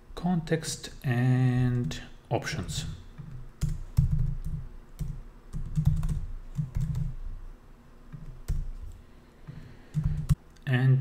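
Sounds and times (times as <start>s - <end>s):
typing on laptop keyboard: 3.2s - 7.2s, 8.2s - 9.0s, 9.9s - 10.4s.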